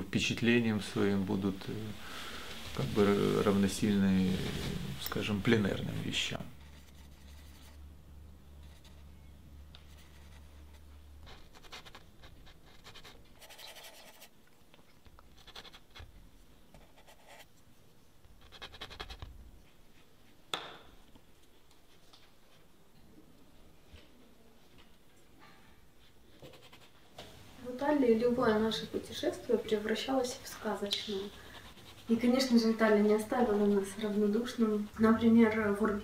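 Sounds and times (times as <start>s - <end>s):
paintbrush strokes on canvas: 2.4s - 5.0s, 30.6s - 35.8s.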